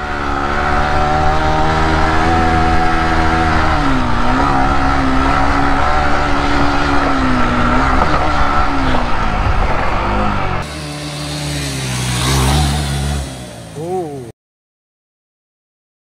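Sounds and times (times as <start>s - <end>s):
motorcycle engine running: 0.0s - 14.3s.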